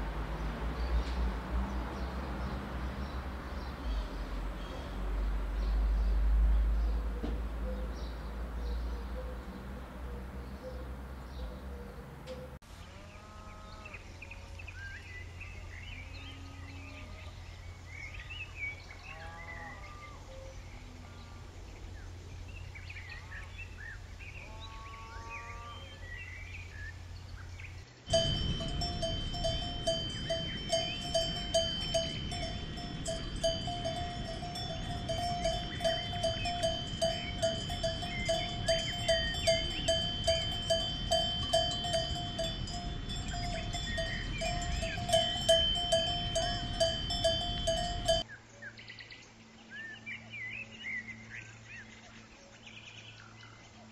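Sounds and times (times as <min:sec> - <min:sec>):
low steady hum: 0:25.5 - 0:48.3
cow bell clanking: 0:28.1 - 0:48.2.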